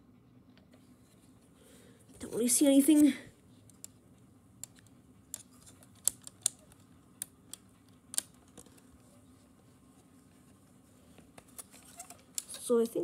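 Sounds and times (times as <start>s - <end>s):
fingers clicking and tapping plastic parts: 4.6s - 8.8s.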